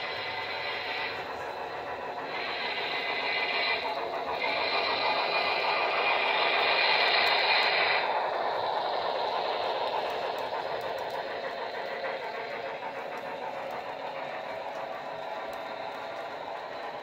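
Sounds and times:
model train rumbling on track: 0:00.0 - 0:17.0.

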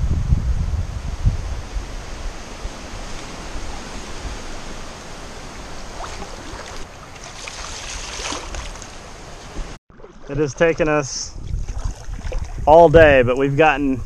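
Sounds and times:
creek water rushing: 0:01.5 - 0:11.0
water splashing: 0:02.3 - 0:12.7.

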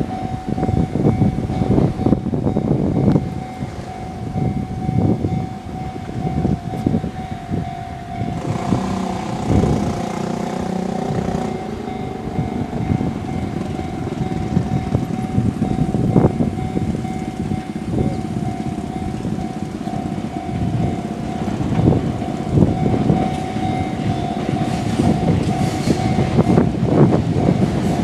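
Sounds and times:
gusty wind: 0:00.0 - 0:28.0
level crossing alarm ringing: 0:00.0 - 0:28.0
traffic rumble: 0:00.0 - 0:28.0
loud rushing: 0:08.2 - 0:16.4.

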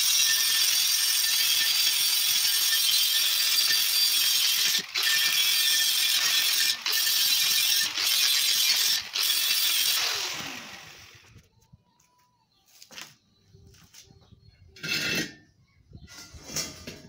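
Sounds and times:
angle grinder grinding metal: 0:00.0 - 0:11.3
grinder motor winding down: 0:02.4 - 0:11.4.

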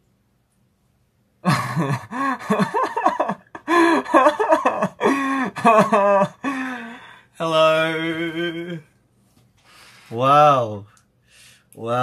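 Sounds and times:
young man laughing bashfully: 0:01.4 - 0:06.7.

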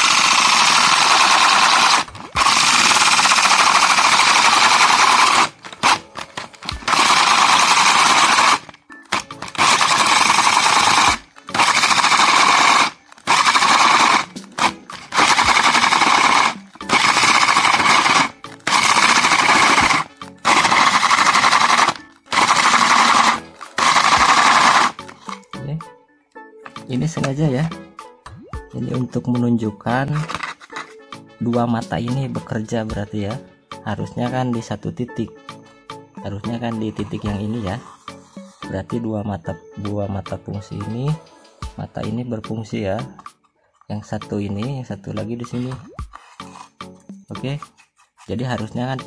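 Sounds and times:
electric drill running: 0:00.0 - 0:25.4
cutter scraping wood: 0:00.0 - 0:25.5, 0:30.0 - 0:31.0, 0:36.5 - 0:38.7, 0:45.6 - 0:48.8.

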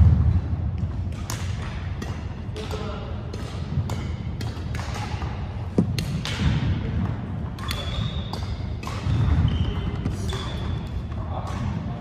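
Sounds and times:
racket hitting shuttlecock: 0:00.0 - 0:12.0
sneakers squeaking on floor: 0:07.5 - 0:12.0.

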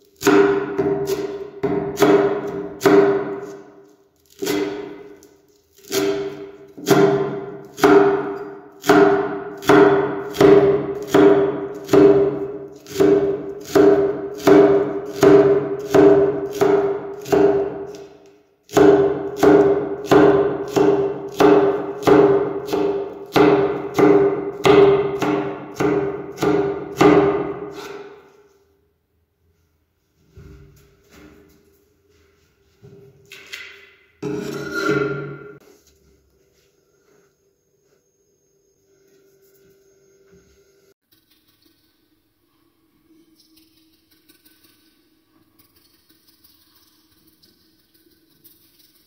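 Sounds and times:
knife chopping on wooden board: 0:00.2 - 0:03.6, 0:05.8 - 0:18.0, 0:18.7 - 0:28.2.

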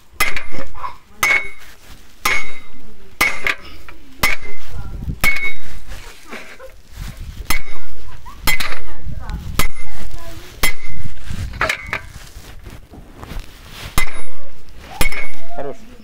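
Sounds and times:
hammer striking metal post: 0:00.2 - 0:04.6, 0:05.2 - 0:05.7, 0:07.5 - 0:08.9, 0:09.6 - 0:10.0, 0:10.6 - 0:12.0, 0:14.0 - 0:15.6.

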